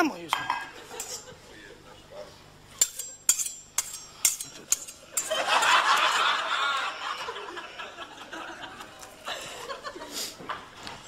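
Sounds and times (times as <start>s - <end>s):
utensil clinking against pan: 2.8s - 6.1s
audience laughing: 5.2s - 10.7s.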